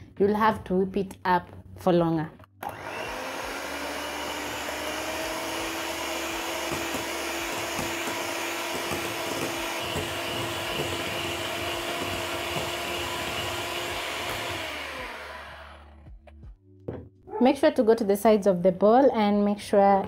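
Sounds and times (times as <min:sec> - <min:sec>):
electric hand mixer whipping cream: 0:02.6 - 0:16.2.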